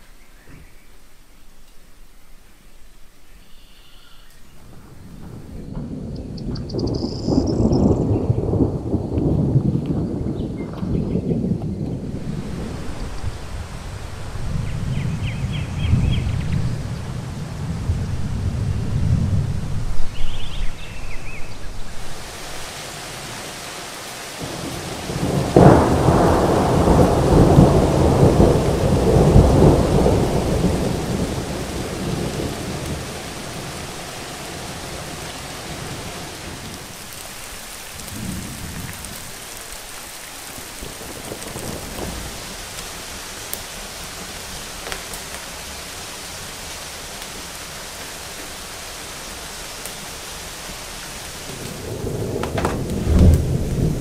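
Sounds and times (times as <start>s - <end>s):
heavy rain: 0.0s - 54.0s
faint thunder rumbles: 2.1s - 54.0s
thunder clap: 4.6s - 20.8s, 21.6s - 39.6s, 40.6s - 42.9s, 51.3s - 54.0s.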